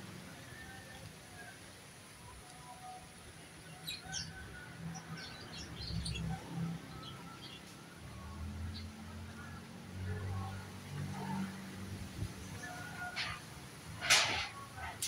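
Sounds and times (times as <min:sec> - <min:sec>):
small birds chirping: 0:02.3 - 0:07.9
wind in the trees: 0:09.2 - 0:15.0.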